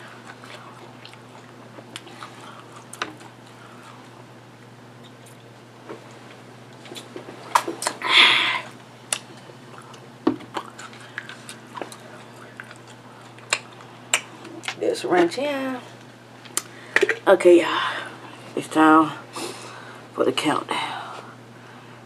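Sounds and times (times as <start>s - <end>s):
close chewing and mouth sounds: 0.0s - 8.0s, 9.1s - 14.8s
steady low hum: 0.0s - 22.0s.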